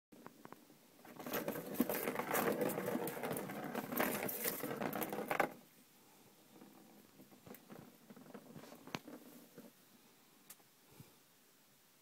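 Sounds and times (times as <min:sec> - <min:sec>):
ball rattling around plastic track: 0:01.0 - 0:05.6, 0:06.6 - 0:09.7.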